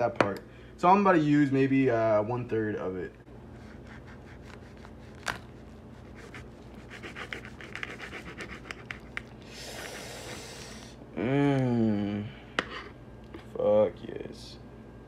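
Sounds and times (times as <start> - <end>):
plastic casing crinkling: 4.9 - 5.6.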